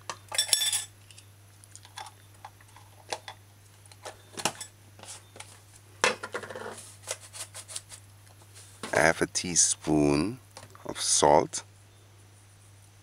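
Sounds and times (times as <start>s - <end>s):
metal utensils clinking: 0.3s - 0.9s
utensils clattering: 0.3s - 0.9s.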